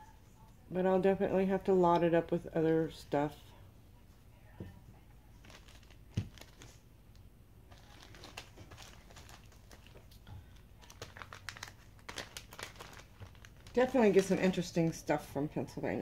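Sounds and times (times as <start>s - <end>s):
plastic bag crinkling: 5.4s - 6.9s, 7.7s - 15.1s.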